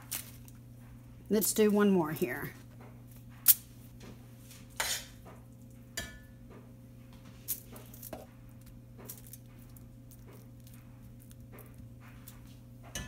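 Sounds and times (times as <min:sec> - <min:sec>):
metal spoon clinking and scraping: 0:04.8 - 0:05.2.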